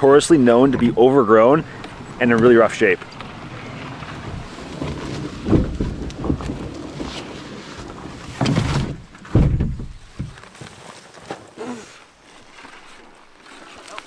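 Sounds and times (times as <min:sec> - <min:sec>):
vegetation scraping and rustling: 0:00.0 - 0:14.0
canoe hull knocking on branches: 0:01.7 - 0:11.5.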